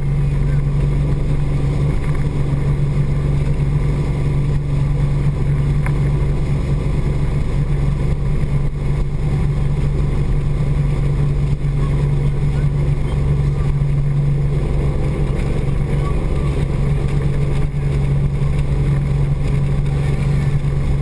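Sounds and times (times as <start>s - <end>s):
boat wake rushing: 0.0s - 21.0s
motorboat engine droning: 0.0s - 21.0s.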